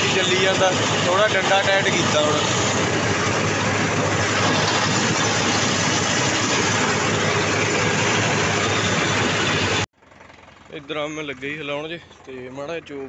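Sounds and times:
mulcher rotor chopping straw: 0.0 - 9.9
tractor engine running under load: 0.0 - 13.0.

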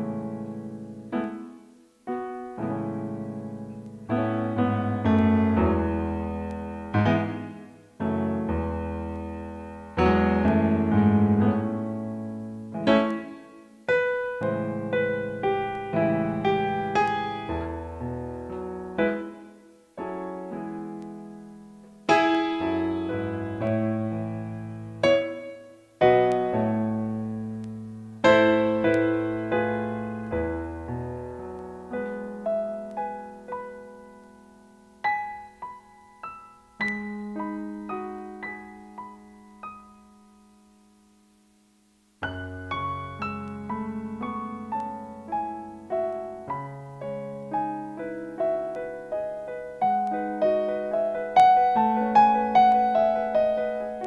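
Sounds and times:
piano chords over bass notes: 0.0 - 40.6, 42.2 - 54.0.

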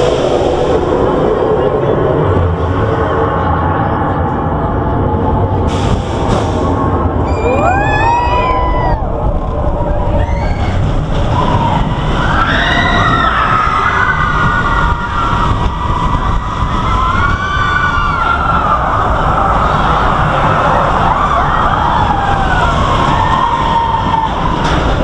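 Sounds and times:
roller coaster train rumble: 0.0 - 25.0
wind on the microphone: 0.0 - 25.0
riders screaming: 9.9 - 24.7.

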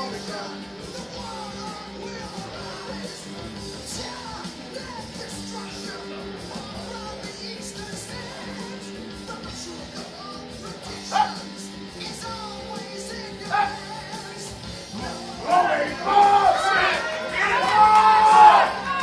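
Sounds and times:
rock music with guitar: 0.0 - 19.0
loud cry: 13.4 - 13.8, 15.1 - 19.0.

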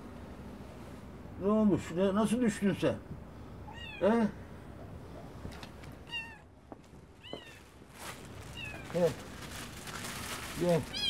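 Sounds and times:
cats meowing: 3.6 - 4.5, 6.0 - 7.8, 8.4 - 9.2, 10.8 - 11.0.

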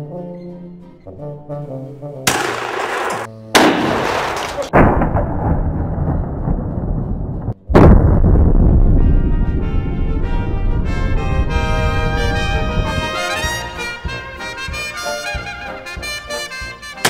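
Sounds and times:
shotgun blasts: 2.3 - 6.8.

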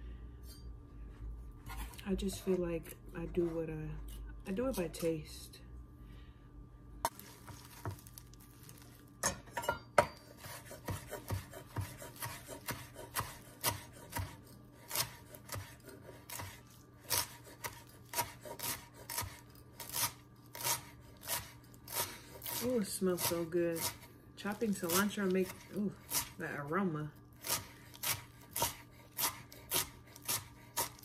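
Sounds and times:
knife chopping on wooden board: 7.1 - 8.1, 10.0 - 24.1, 24.8 - 26.4, 27.4 - 31.0.

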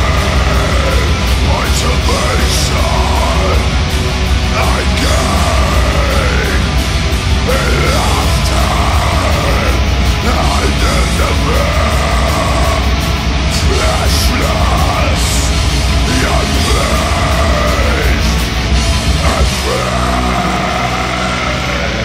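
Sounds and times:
bass guitar: 0.0 - 22.0
distorted guitars: 0.0 - 22.0
drums playing: 0.0 - 22.0.

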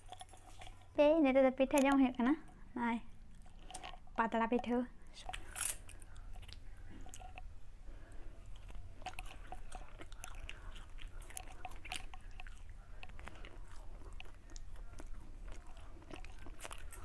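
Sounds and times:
person chewing rice cake: 3.2 - 4.2, 5.2 - 17.0.

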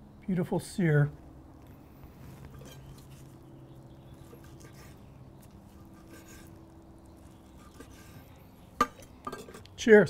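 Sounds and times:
faint steady hum: 0.0 - 10.0.

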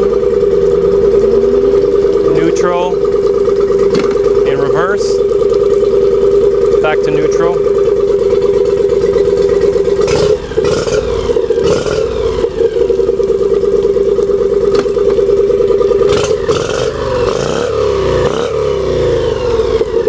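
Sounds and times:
outboard motor running: 0.0 - 20.0
sharp engine knocks: 1.8 - 17.5.

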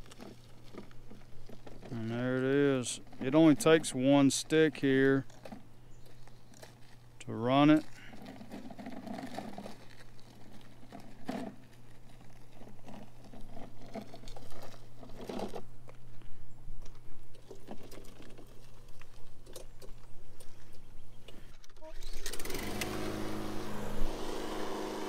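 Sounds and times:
gravel crunching: 0.0 - 25.0
low hum: 20.2 - 25.0.

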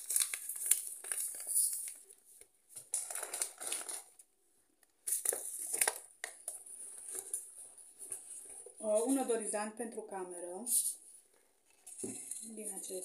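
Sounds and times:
paper bags rustling and crunching: 0.0 - 2.1, 2.8 - 4.2.

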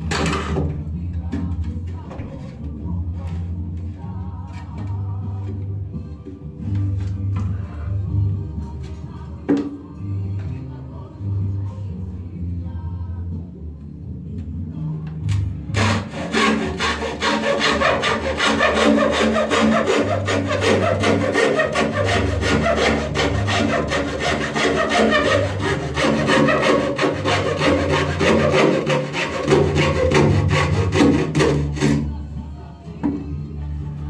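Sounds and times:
hacksaw cutting wood: 15.8 - 32.2.

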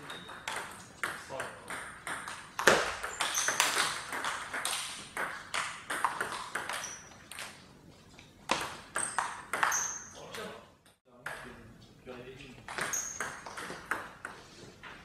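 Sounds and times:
ping pong ball bouncing on table: 0.0 - 7.5, 8.5 - 10.2, 12.6 - 14.4
ping pong ball striking bats: 0.0 - 7.6, 8.4 - 10.2, 12.6 - 14.4.

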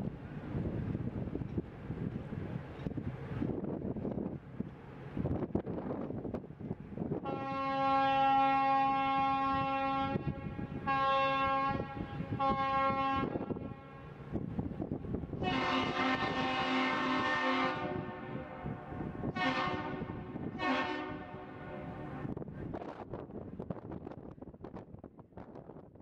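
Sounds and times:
wind on microphone: 0.0 - 7.9, 8.5 - 26.0
boat horn blasts: 7.2 - 14.2, 15.4 - 22.3
bridge horn blasts: 7.2 - 14.2, 15.4 - 22.4.

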